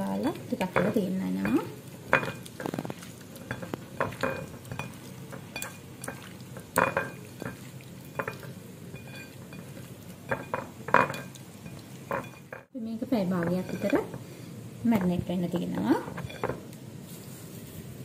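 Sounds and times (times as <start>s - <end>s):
hands mixing prawns in marinade: 0.0s - 14.3s.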